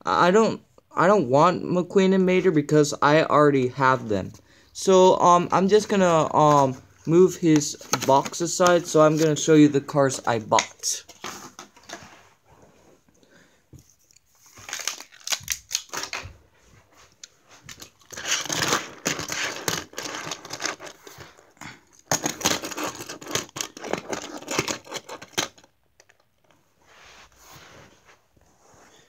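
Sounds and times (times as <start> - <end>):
toy cars clicking and scraping: 17.8 - 21.0, 22.0 - 26.2.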